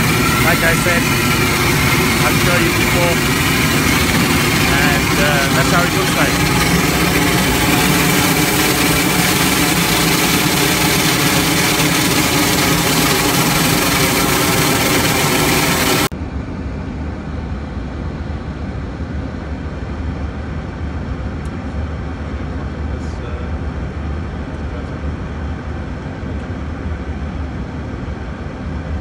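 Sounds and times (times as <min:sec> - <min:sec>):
low steady hum: 0:00.0 - 0:16.1
jet exhaust roar with whining tones: 0:00.0 - 0:29.0.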